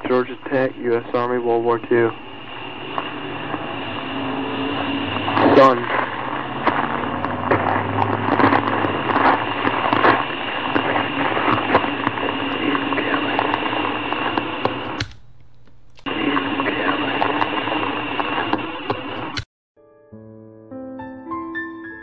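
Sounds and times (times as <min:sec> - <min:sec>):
tape hiss: 0:00.0 - 0:19.5
clicks: 0:06.6 - 0:17.6, 0:18.2 - 0:19.5.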